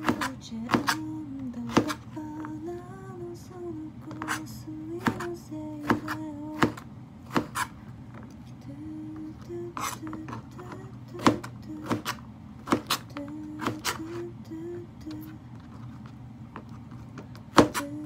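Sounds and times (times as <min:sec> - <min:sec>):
woman humming: 0:00.0 - 0:06.8, 0:08.6 - 0:12.1, 0:13.0 - 0:15.4, 0:17.8 - 0:18.0
knife slicing on cutting board: 0:05.0 - 0:07.8, 0:11.2 - 0:14.2.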